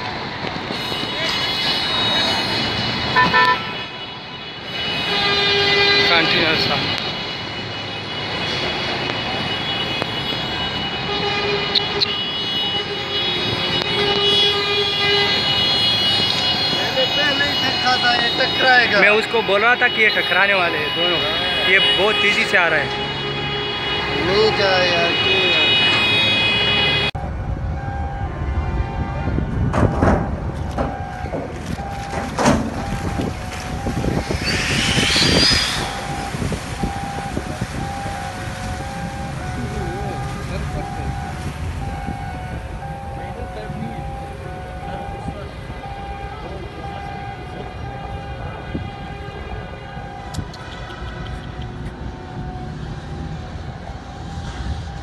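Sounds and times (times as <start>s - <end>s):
rushing background noise: 13.3s - 55.0s
low rumble: 27.2s - 38.0s
steady horn-like tone: 33.2s - 37.4s.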